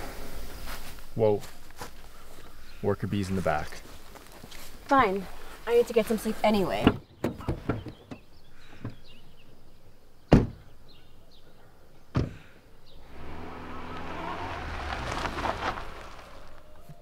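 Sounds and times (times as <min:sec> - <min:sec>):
car door slams: 0:10.3 - 0:10.6
car engine running: 0:13.0 - 0:16.8.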